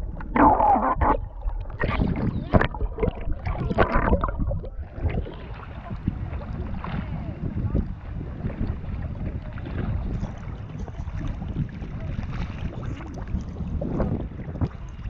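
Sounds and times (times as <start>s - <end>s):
sea water sloshing: 0.0s - 15.0s.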